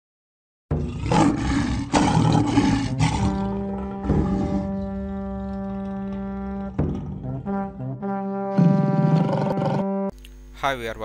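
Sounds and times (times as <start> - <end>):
lion roaring: 0.7 - 7.5, 8.6 - 9.9
held brass chord: 3.4 - 10.1.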